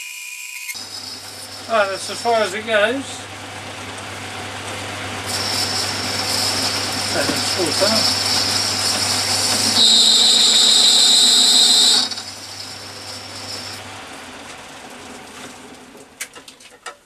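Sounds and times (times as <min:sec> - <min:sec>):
metal lathe whining: 0:00.1 - 0:15.2.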